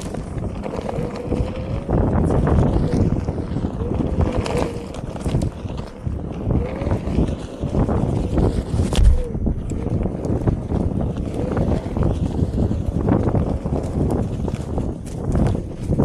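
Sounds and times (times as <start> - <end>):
board rolling on dirt trail: 0.0 - 16.0
wind on microphone: 0.0 - 16.0.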